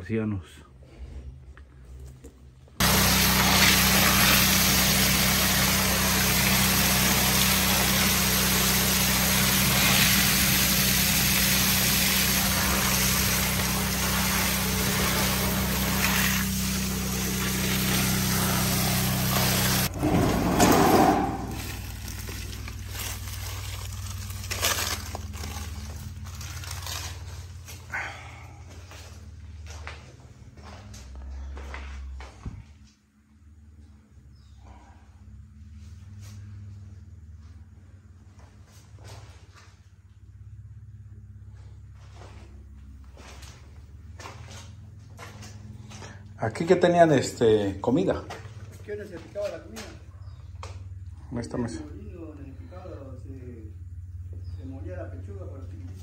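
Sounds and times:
motor humming: 2.8 - 26.5
loud rushing noise: 19.6 - 22.0
brief whoosh: 19.9 - 21.8.

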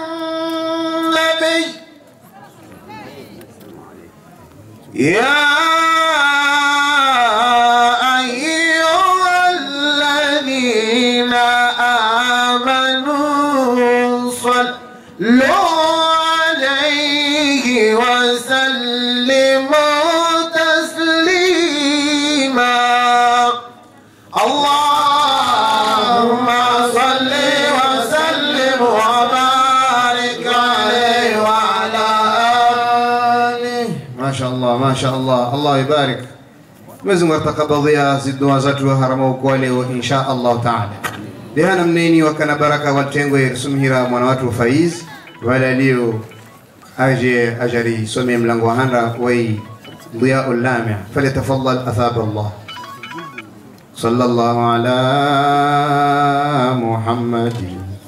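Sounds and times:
man chanting into a microphone: 0.0 - 1.9, 4.9 - 36.4, 50.2 - 52.6, 54.0 - 58.0.

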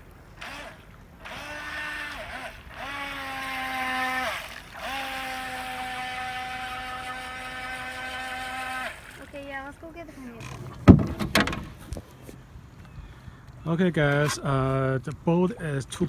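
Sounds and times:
toy boat electric motor whining: 0.4 - 9.7.

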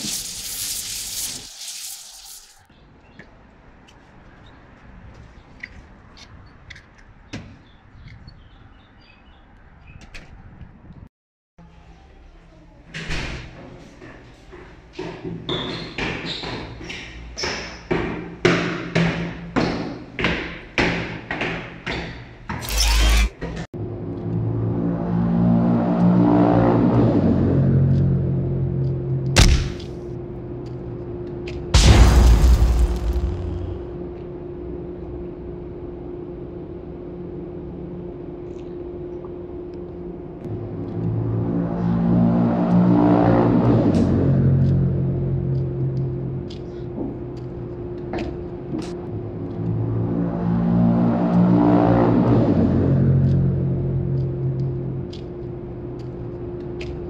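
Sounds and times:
footsteps climbing stairs: 13.6 - 22.6
boom: 31.8 - 34.1
low steady drone: 31.8 - 57.0.

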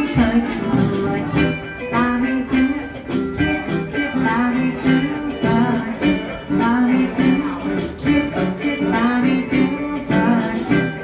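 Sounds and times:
guitars playing: 0.0 - 11.0.

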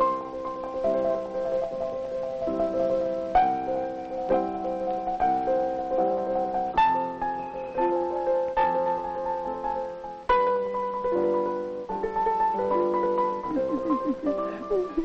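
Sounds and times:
solo piano chords and melody: 0.0 - 15.0.

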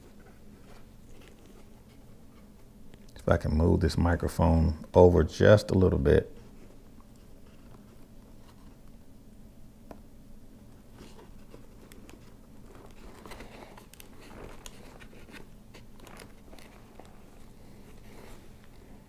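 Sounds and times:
fabric and plastic rustling: 0.0 - 2.7, 10.7 - 19.0
steady low hum: 0.0 - 19.0.

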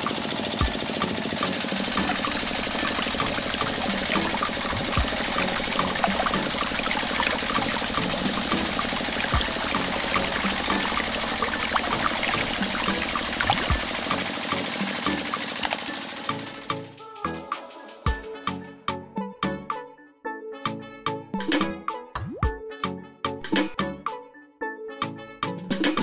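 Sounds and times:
small electric motor whirring: 0.0 - 17.2.

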